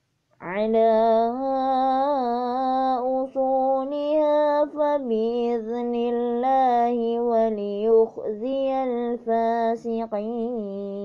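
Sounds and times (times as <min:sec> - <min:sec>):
person chanting melodically: 0:00.4 - 0:11.0.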